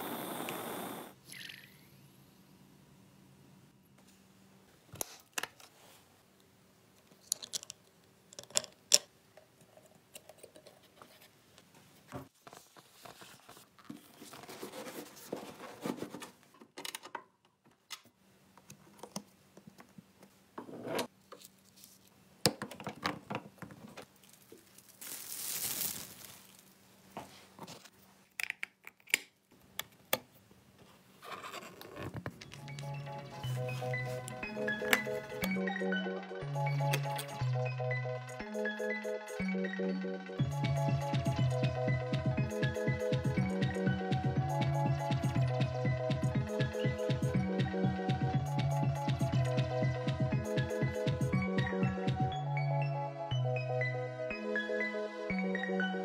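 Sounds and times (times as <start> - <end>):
hiss: 0.0 - 1.2
small plastic parts clicking: 7.0 - 9.1.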